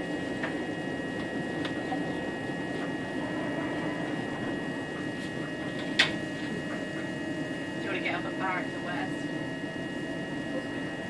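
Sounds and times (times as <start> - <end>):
constant high whine: 0.0 - 11.0.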